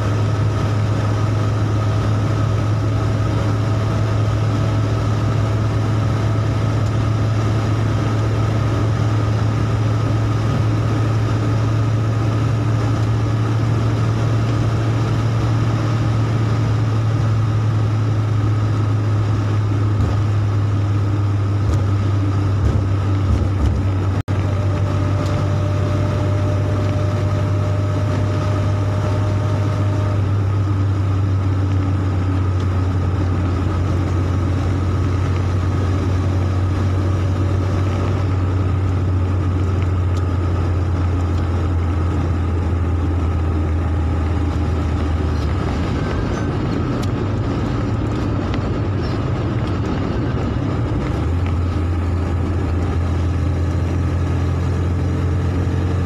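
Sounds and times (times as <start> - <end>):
tyres on wet road: 0.0 - 56.0
vehicle engine drone: 0.0 - 56.0.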